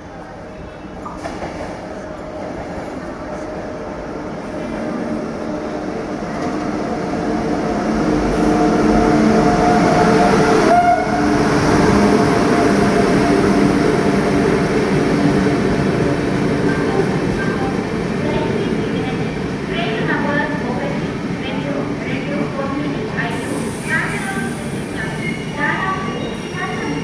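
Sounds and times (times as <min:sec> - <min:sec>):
train locomotive passing: 0:00.0 - 0:27.0.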